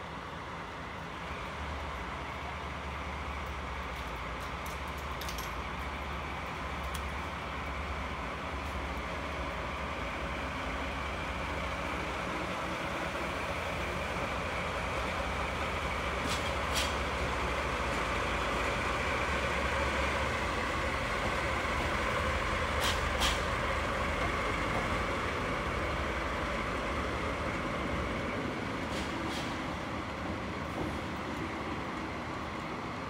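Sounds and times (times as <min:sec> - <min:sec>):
diesel locomotive engine rumble: 0:00.0 - 0:33.0
wheels clicking over rail joints: 0:03.4 - 0:07.3.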